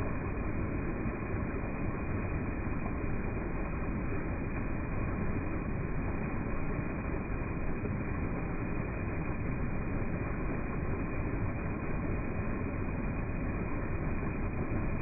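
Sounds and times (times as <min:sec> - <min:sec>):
water rushing over a ledge: 0:00.0 - 0:15.0.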